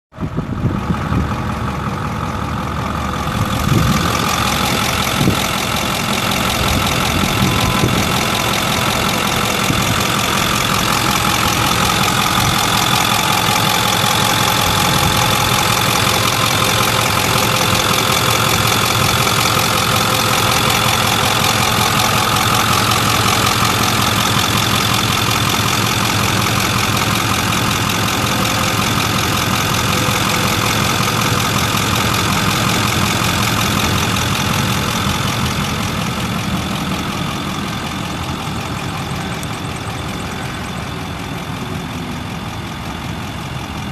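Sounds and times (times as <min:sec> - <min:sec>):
diesel engine idling: 0:00.1 - 0:43.9.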